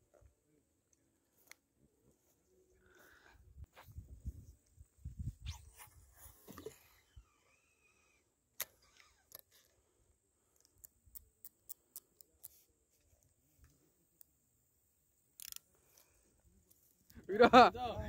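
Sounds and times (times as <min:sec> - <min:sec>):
fishing reel clicks: 0:15.4 - 0:15.7.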